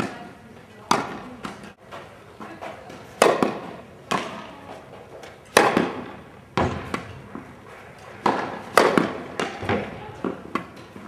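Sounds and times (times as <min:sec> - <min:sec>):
tennis ball bouncing on court: 0:00.0 - 0:01.7, 0:02.7 - 0:04.5, 0:05.2 - 0:07.5, 0:08.2 - 0:11.0
tennis ball struck by rackets: 0:00.9 - 0:01.8, 0:03.2 - 0:04.5, 0:05.2 - 0:07.5, 0:08.2 - 0:11.0.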